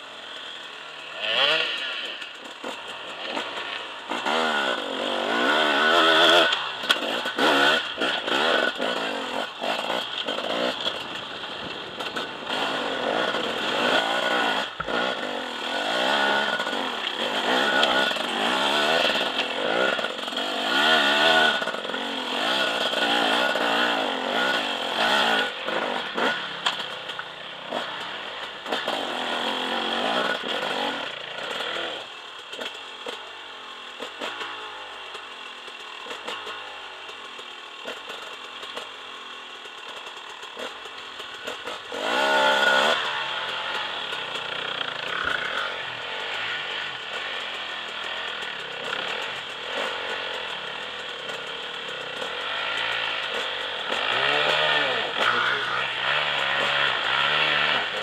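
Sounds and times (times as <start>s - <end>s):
motorcycle engine revving: 0.0s - 58.0s.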